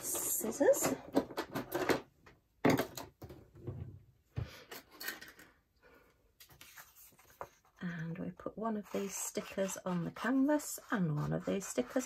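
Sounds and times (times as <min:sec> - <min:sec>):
knocks and clatters on table: 0:00.7 - 0:03.9
paper rustling: 0:06.4 - 0:07.7.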